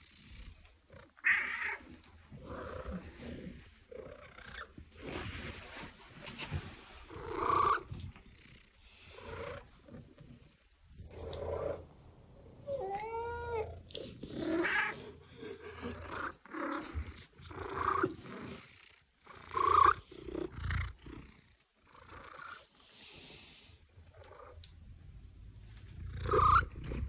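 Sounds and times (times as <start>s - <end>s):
cats meowing: 12.6s - 13.9s, 26.2s - 27.0s.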